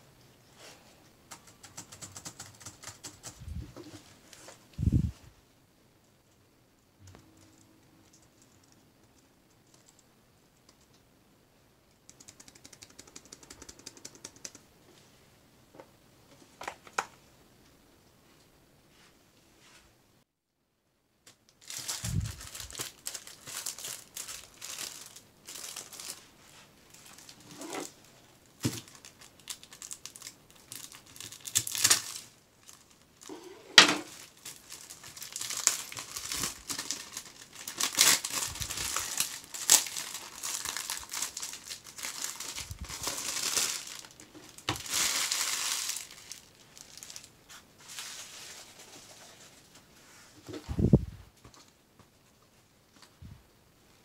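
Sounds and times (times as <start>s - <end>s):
plastic bag crinkling: 21.6s - 49.6s.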